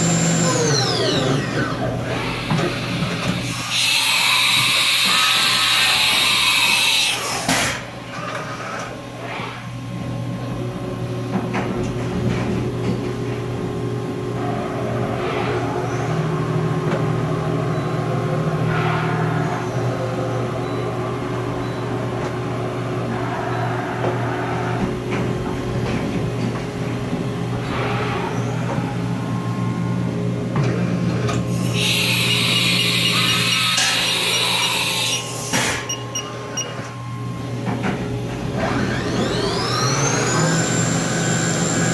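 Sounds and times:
milling machine humming: 0.0 - 7.1, 15.8 - 41.9
high-pitched spindle whine: 31.6 - 37.4.

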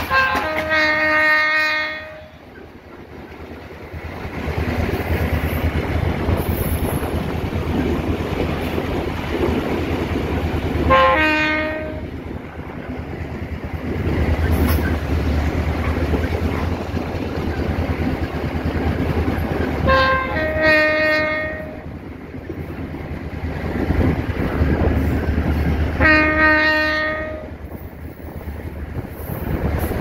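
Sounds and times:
locomotive horn blasts: 0.0 - 2.5, 10.9 - 12.1, 19.9 - 21.8, 26.0 - 27.5
diesel engine and wheels rumbling: 0.0 - 30.0.

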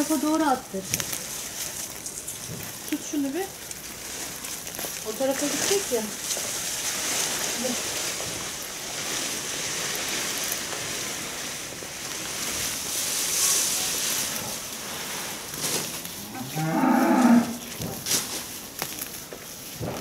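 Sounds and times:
branches being dragged: 0.0 - 20.0
cow mooing: 16.3 - 17.7.

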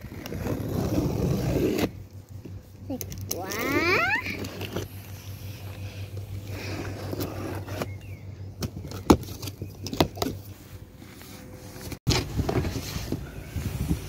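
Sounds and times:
cardboard and plastic rustling: 8.6 - 14.0.

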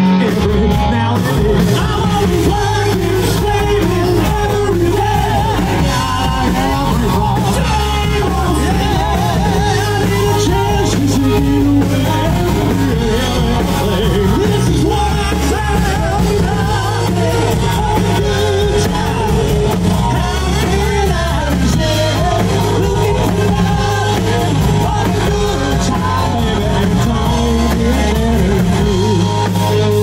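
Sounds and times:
drums: 0.0 - 30.0
electric guitar: 0.0 - 30.0
keyboard: 0.0 - 30.0
singer belting into microphone: 0.0 - 30.0.

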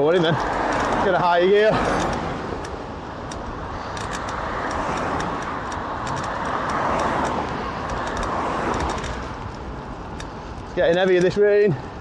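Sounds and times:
low traffic rumble: 0.0 - 12.0
vehicles passing on wet road: 0.0 - 12.0.

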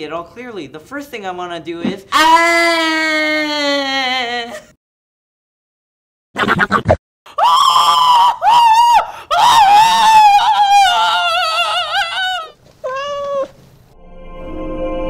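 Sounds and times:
high-pitched voice screaming: 2.1 - 4.6, 7.4 - 13.5.

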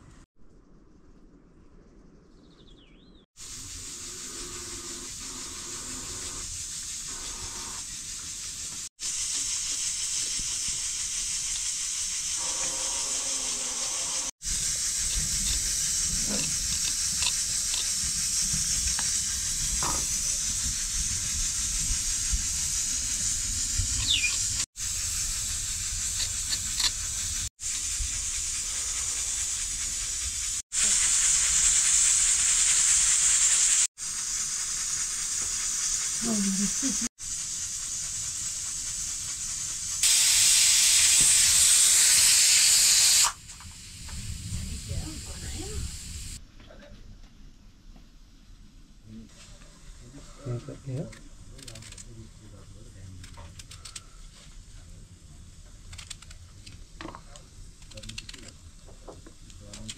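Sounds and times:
food hissing in a pot: 3.4 - 46.4.

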